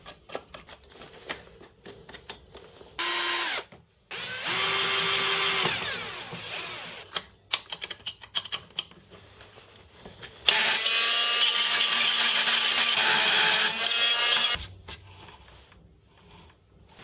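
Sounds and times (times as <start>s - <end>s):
cordless drill driving screws: 3.0s - 7.2s, 10.5s - 14.6s.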